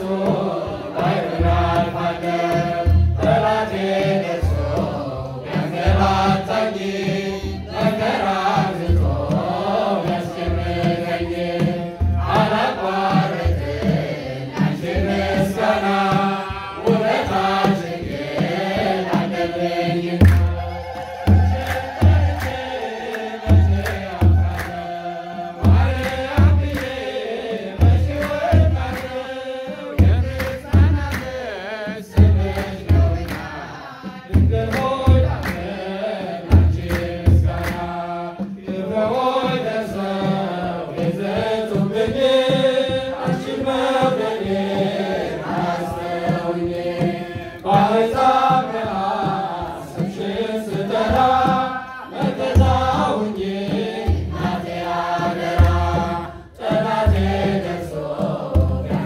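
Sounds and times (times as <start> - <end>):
choir singing: 0.0 - 59.0
hand clapping: 20.2 - 35.8, 36.4 - 39.6, 45.4 - 57.2.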